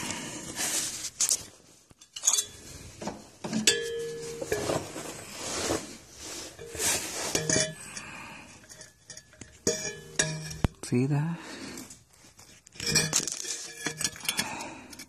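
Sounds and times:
scraping and rustling: 0.3 - 10.7, 11.8 - 15.0
metallic clinks and knocks: 2.0 - 2.7, 3.4 - 4.8, 6.6 - 10.9, 12.5 - 15.0.

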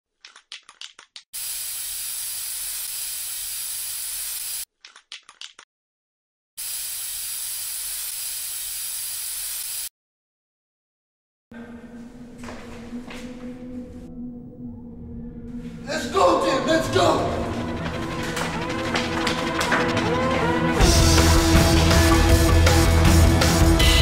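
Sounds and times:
spray can rattling: 0.2 - 5.6
spray can hissing: 1.4 - 4.7, 6.6 - 9.9.

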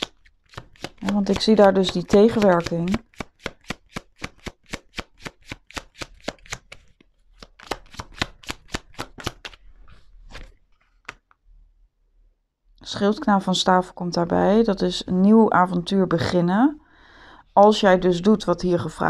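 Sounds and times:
cards being shuffled: 0.0 - 11.4.

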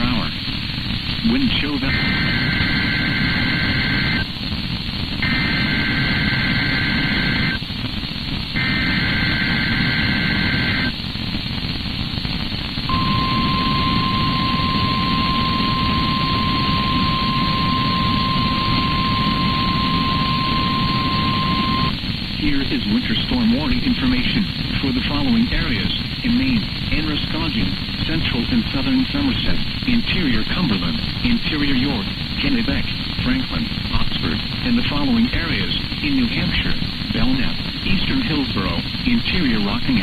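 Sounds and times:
radio static: 0.0 - 40.0
steady warning alarm tone: 5.2 - 7.6, 8.6 - 10.9, 12.9 - 22.0
digital header bursts: 12.9 - 22.7.

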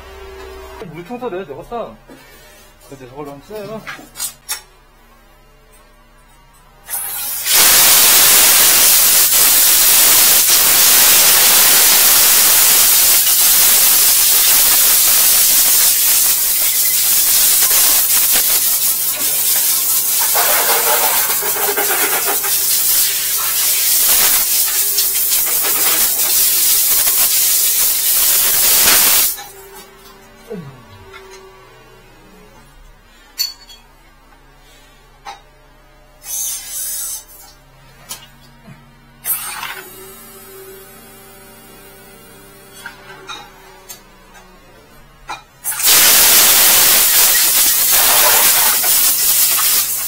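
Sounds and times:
water jetter spraying hiss: 6.9 - 29.5, 36.2 - 37.2, 45.6 - 50.0.

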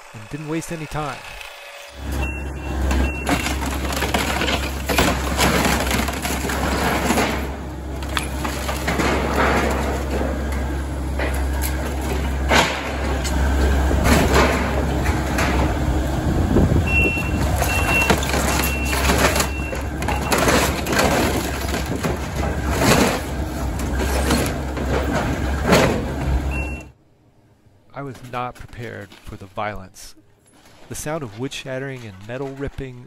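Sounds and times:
excavator diesel engine running: 0.0 - 27.0
backup alarm beeping: 2.0 - 3.6, 16.8 - 21.1, 26.4 - 27.0
wood shattering: 2.0 - 15.8, 16.9 - 26.8
metal roofing ripping: 2.0 - 15.9, 16.8 - 26.5.

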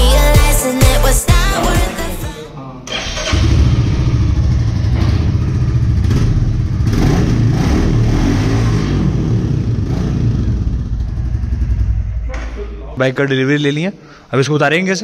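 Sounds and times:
motorcycle engine revving: 3.0 - 12.8.

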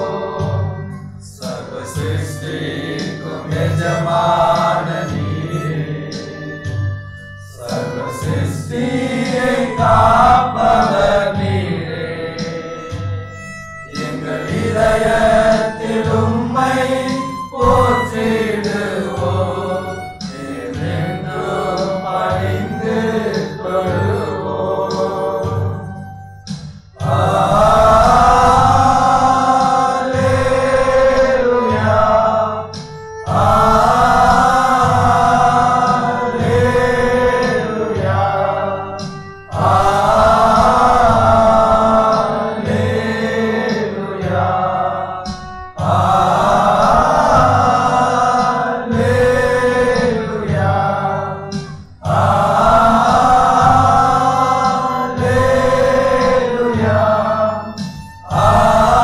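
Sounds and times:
group singing devotional song: 0.0 - 26.2, 27.0 - 59.0
keyboard accompaniment: 0.0 - 59.0
steady drum beat: 0.0 - 59.0.

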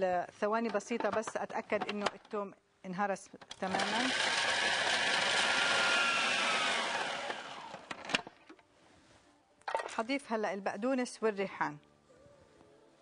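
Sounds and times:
food processor motor chopping: 3.6 - 8.0.

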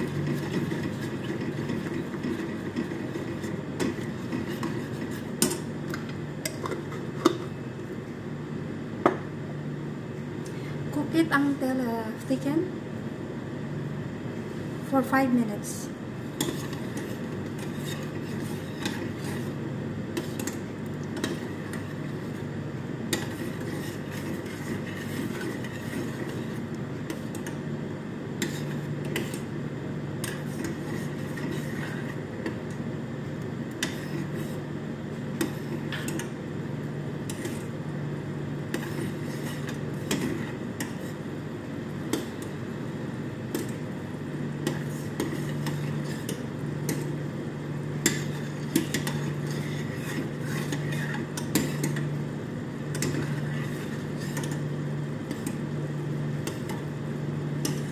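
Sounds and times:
steady low hum: 0.0 - 57.9
metal spoon scraping saucepan: 16.4 - 19.5, 48.0 - 52.0.

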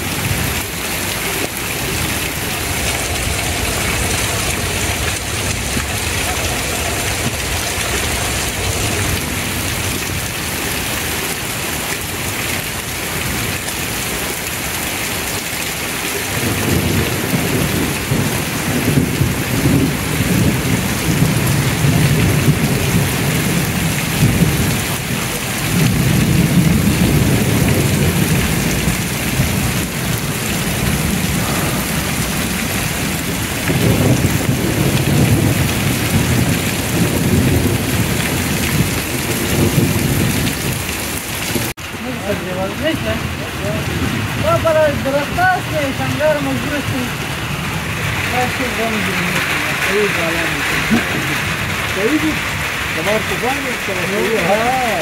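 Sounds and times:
deep rumble: 0.0 - 11.4
heavy rain on street: 0.0 - 55.0.

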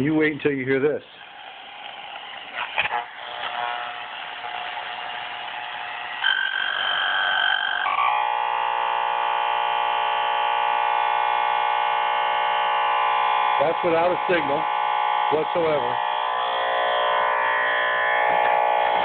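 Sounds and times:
harsh steady buzz: 0.0 - 19.0.

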